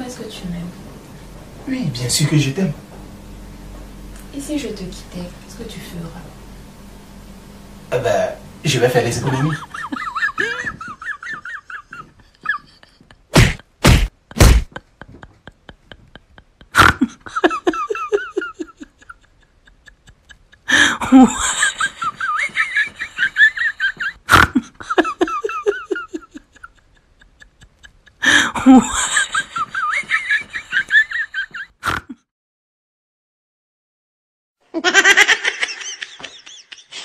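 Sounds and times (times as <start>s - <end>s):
canned laughter: 9.1s - 13.3s, 14.7s - 31.8s, 34.8s - 37.0s
sharp whacks: 13.3s - 14.7s.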